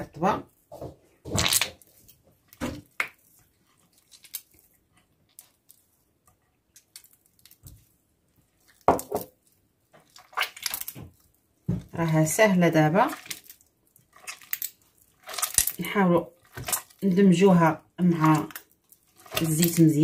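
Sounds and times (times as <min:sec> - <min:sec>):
hands squishing margarine: 0:00.5 - 0:17.4, 0:18.0 - 0:20.0.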